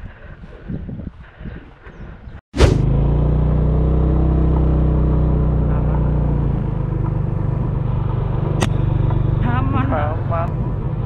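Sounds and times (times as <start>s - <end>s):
motorcycle engine running: 2.6s - 11.0s.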